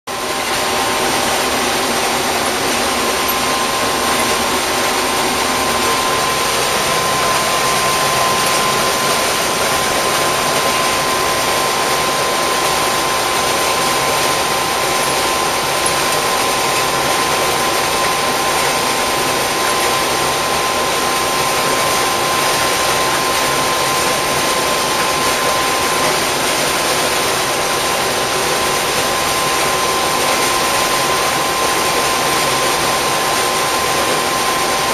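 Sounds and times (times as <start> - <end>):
high whine: 0.1 - 27.2
combine harvester drone: 0.1 - 34.9.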